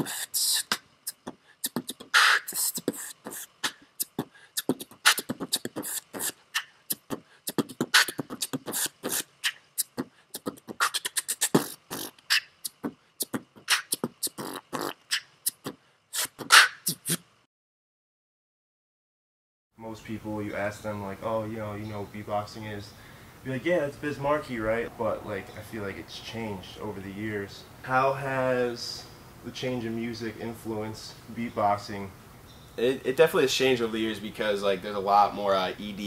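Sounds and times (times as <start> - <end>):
man beatboxing: 0.0 - 17.2.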